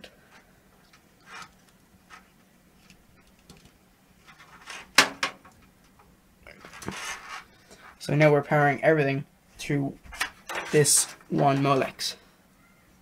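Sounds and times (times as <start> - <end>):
connectors and wires rattling: 0.3 - 8.0, 10.0 - 12.0.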